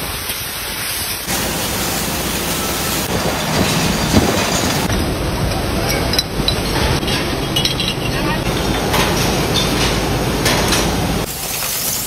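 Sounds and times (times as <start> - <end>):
factory machinery din with hiss: 0.0 - 5.2, 8.4 - 12.0.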